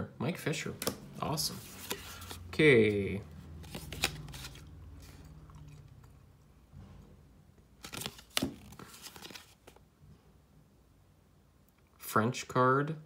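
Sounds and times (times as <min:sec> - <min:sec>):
cardboard cards sliding: 0:00.8 - 0:02.5, 0:03.5 - 0:05.2, 0:07.8 - 0:09.8.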